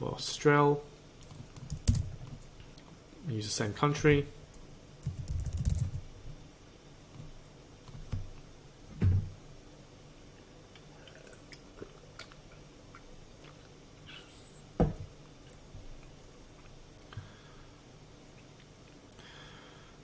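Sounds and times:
faint steady hum: 0.0s - 20.0s
soft thumps at a desk: 14.8s - 15.1s.

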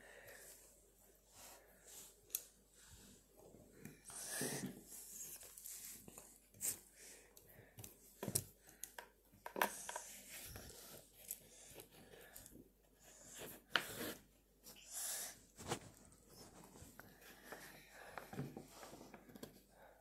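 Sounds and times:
soft rustling of plastic pieces: 15.5s - 20.0s.

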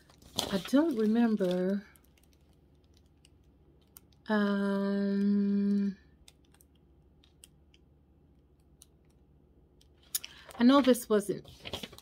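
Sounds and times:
woman humming: 4.3s - 6.0s.

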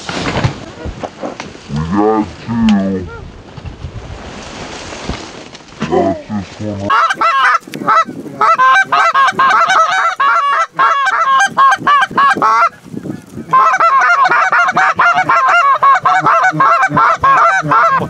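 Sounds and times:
goose calls honking and clucking: 6.9s - 18.0s.

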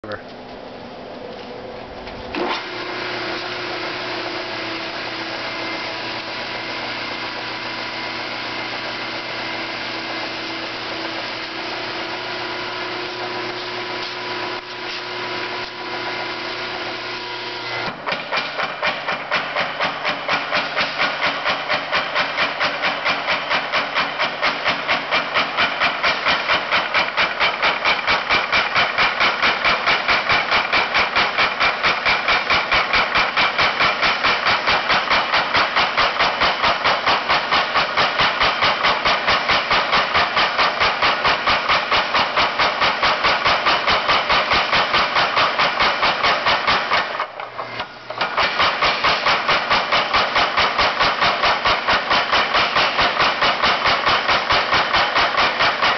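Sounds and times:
power hammer striking hot metal: 17.6s - 47.5s, 48.1s - 55.9s.

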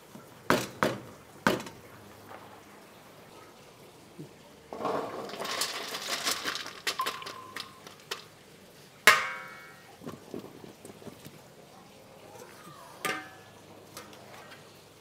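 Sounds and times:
metal clanging on pot: 4.7s - 8.3s, 9.1s - 9.9s, 13.0s - 14.7s.

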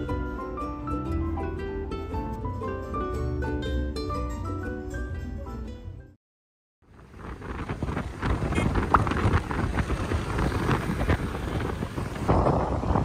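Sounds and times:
road and traffic noise: 0.0s - 6.2s, 6.8s - 13.0s
wind rushing over microphone: 6.8s - 13.0s.

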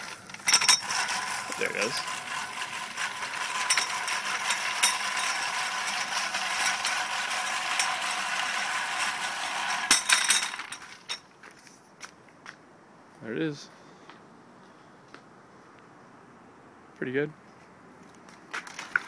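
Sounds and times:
drive gears clicking: 0.0s - 11.2s
reel mower blades whirring: 0.0s - 11.2s.

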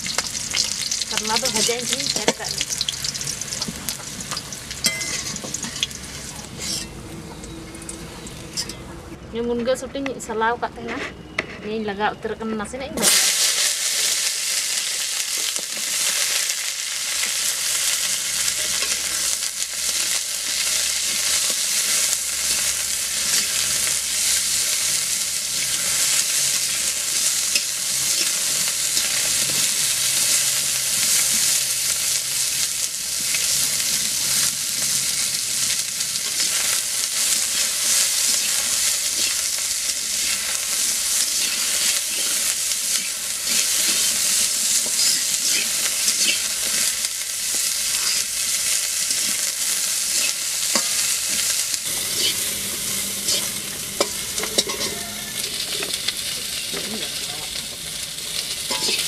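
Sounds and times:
vegetable pieces sizzling in pan: 0.0s - 8.7s, 13.0s - 59.0s
metal spatula scraping pan: 4.8s - 7.0s, 36.2s - 46.9s, 47.9s - 48.3s, 50.1s - 52.6s, 53.2s - 55.9s, 58.7s - 59.0s.

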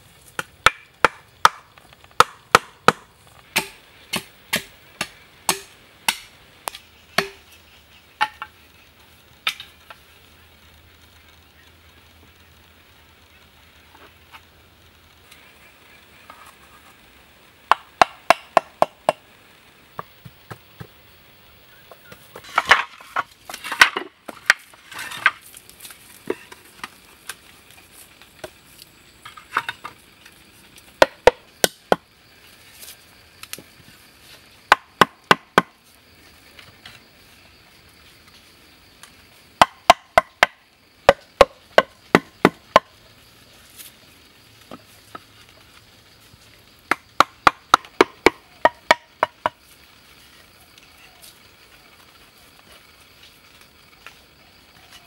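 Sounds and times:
knife chopping bamboo: 0.4s - 7.4s, 34.7s - 35.7s.

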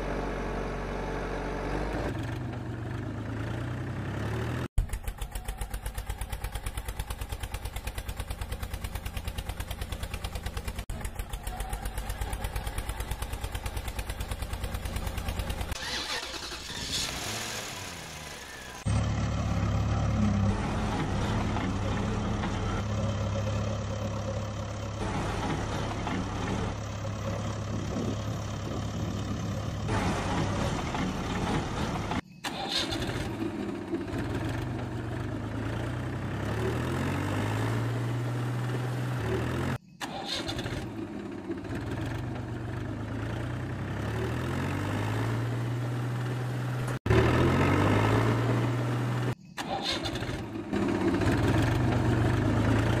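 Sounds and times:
deeper engine running: 0.0s - 16.8s, 17.8s - 32.2s, 50.3s - 53.0s
engine idling: 4.7s - 16.9s.

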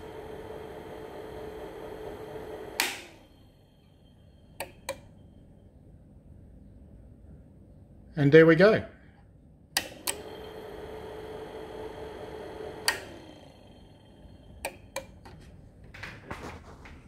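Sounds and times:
amplifier hum: 0.0s - 8.0s, 9.4s - 17.0s
loud relay click: 2.6s - 3.3s, 4.5s - 5.1s, 9.7s - 10.5s, 12.8s - 13.4s, 14.5s - 15.3s.

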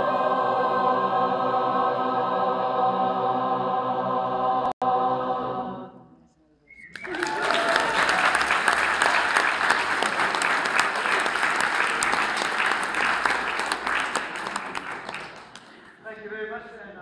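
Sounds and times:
audience applauding: 6.9s - 16.0s.

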